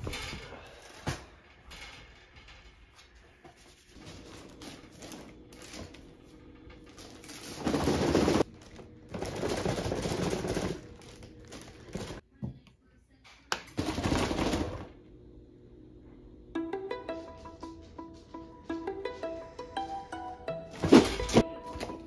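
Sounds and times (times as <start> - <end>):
wrapping paper crinkling: 3.7 - 12.2.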